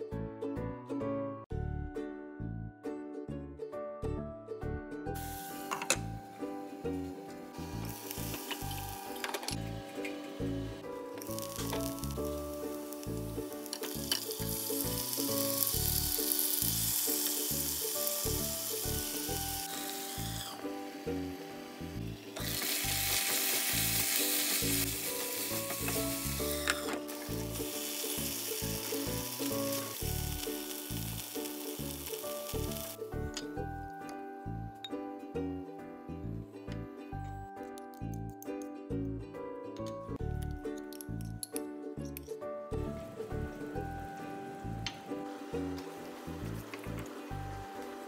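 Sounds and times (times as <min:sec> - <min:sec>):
food sizzling in a pan: 0:05.2 - 0:33.3, 0:44.4 - 0:48.0.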